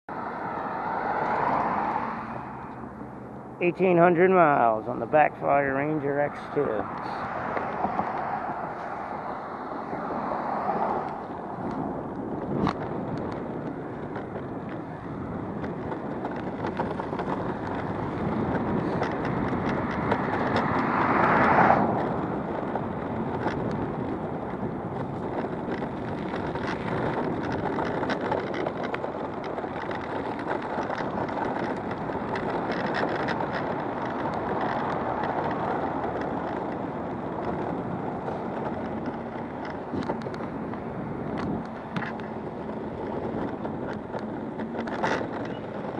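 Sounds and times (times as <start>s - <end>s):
skateboard wheels rolling on asphalt: 0.1s - 45.9s
wind on microphone: 0.1s - 45.9s
clicks and knocks from bumps: 6.9s - 9.3s, 10.7s - 14.8s, 15.6s - 45.9s.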